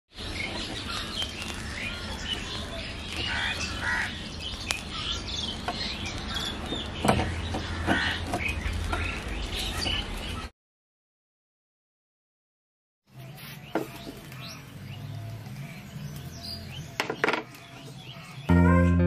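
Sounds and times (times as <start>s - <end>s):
birds chirping: 0.1s - 10.5s, 13.1s - 19.0s
sharp crackles: 0.1s - 10.5s.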